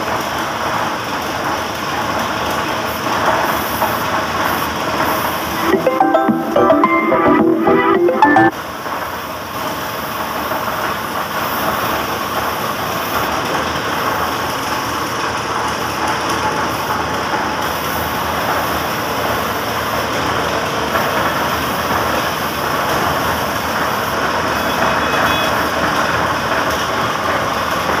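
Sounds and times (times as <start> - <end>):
air spray gun hissing: 2.8 - 5.6, 9.8 - 15.2, 17.6 - 20.2, 21.0 - 24.6.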